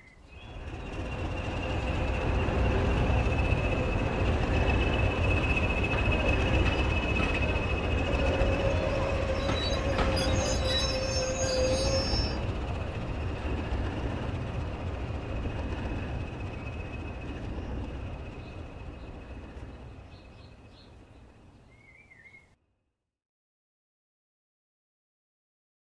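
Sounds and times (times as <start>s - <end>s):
model train rumble and whine: 0.2s - 22.2s.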